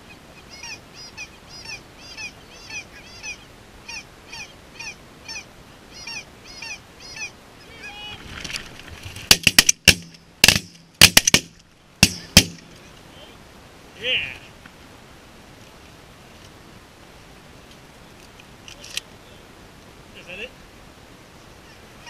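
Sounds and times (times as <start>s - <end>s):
geese calling: 0.0s - 8.3s, 21.5s - 22.0s
shotgun shots: 9.3s - 12.7s.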